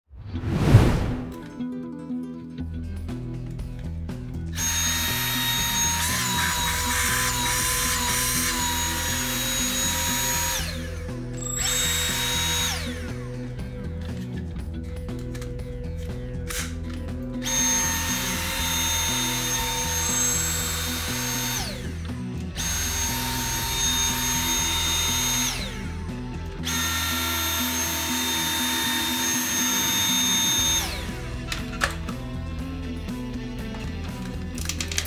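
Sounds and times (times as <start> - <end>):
background music: 0.1 - 35.0
vacuum motor whining: 26.7 - 31.1.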